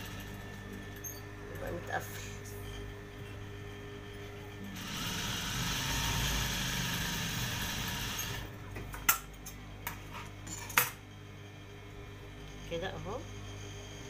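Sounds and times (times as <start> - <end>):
steady low hum: 0.0 - 7.6, 8.4 - 14.0
sewing machine stitching: 4.8 - 8.5.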